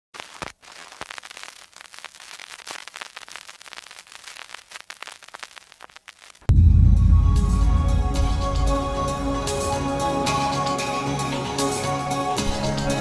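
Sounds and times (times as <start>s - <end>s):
crackling static: 0.1s - 6.5s
loud music with deep bass: 6.5s - 13.0s.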